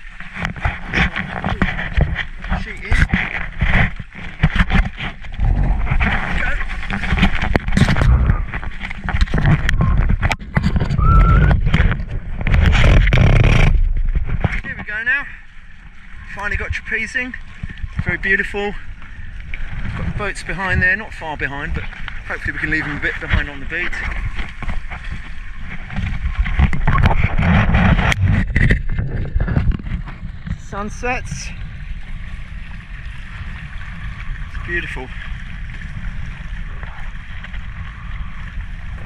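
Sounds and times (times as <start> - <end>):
boat knocks and clatter: 0.0 - 39.0
water rushing along hull: 0.0 - 39.0
wind buffeting microphone: 0.0 - 39.0
short rising squeak: 10.9 - 11.6.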